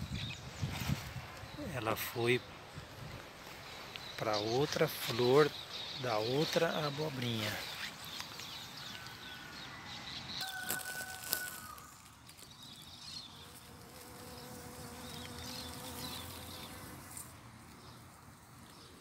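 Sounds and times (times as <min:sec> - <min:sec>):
bees buzzing: 0:12.8 - 0:17.4.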